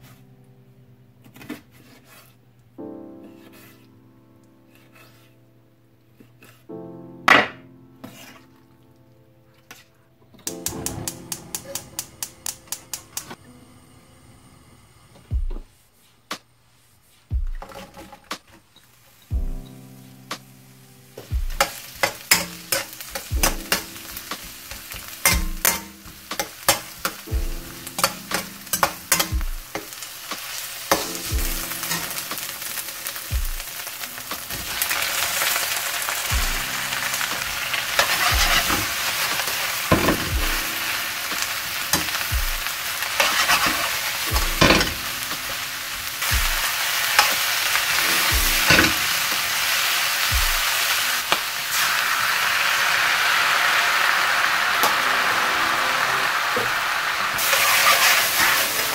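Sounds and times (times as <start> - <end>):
oil sizzling: 10.4 - 15.2, 18.8 - 58.9
metal ladle scraping wok: 21.6 - 23.9, 28.0 - 30.0, 37.0 - 40.2, 42.9 - 45.5, 57.3 - 58.9.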